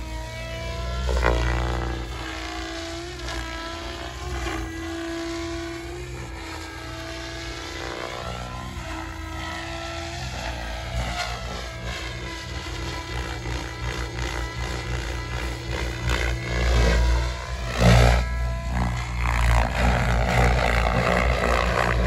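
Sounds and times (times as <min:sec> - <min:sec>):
model aircraft motor whine: 0:00.0 - 0:22.0
steady low rumble: 0:15.6 - 0:22.0.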